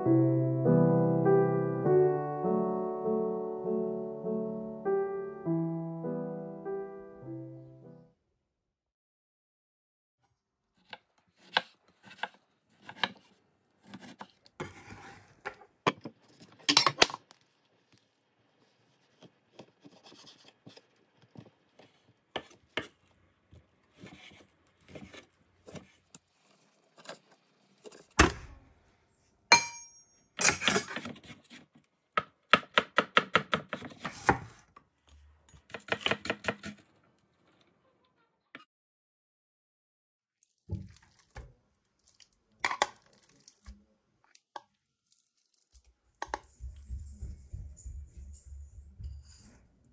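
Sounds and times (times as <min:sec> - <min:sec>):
knife cutting on wooden board: 0:10.8 - 0:15.3
short ringing clink: 0:29.5 - 0:30.3.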